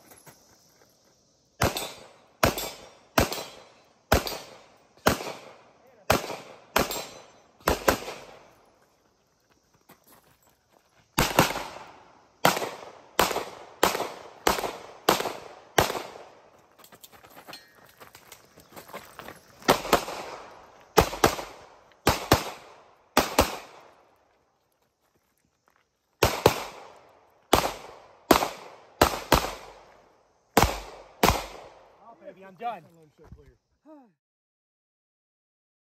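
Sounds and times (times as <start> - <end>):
pistol shots ringing: 1.6 - 8.6, 11.2 - 16.3, 19.7 - 23.9, 30.6 - 31.8.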